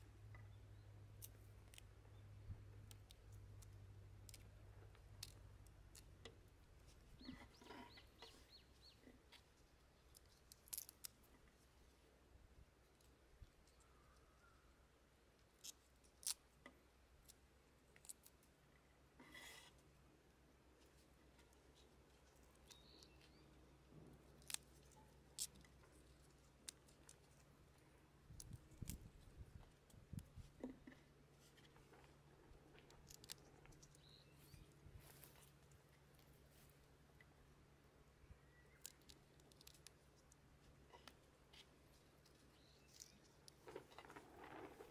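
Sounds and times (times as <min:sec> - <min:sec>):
bird chirping: 0:00.4 - 0:01.0, 0:07.1 - 0:09.2, 0:13.6 - 0:14.8, 0:22.6 - 0:23.6, 0:33.7 - 0:34.8, 0:38.2 - 0:39.2, 0:42.4 - 0:43.4
sprouts being trimmed snapping: 0:02.8 - 0:08.4, 0:09.3 - 0:11.3, 0:15.6 - 0:18.5, 0:24.2 - 0:30.8, 0:31.5 - 0:34.2, 0:38.6 - 0:40.4.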